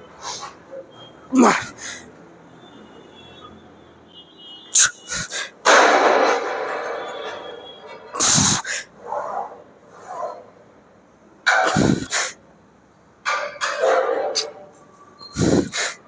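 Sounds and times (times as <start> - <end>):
man exhaling and grunting: 1.3 - 2.0, 4.7 - 5.6, 8.2 - 8.9, 11.6 - 12.4, 15.3 - 16.0.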